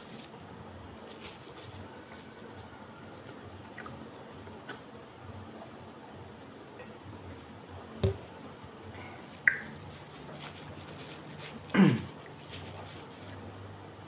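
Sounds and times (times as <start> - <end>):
faint room noise: 0.0 - 14.0
plastic bottle set down: 8.0 - 8.2.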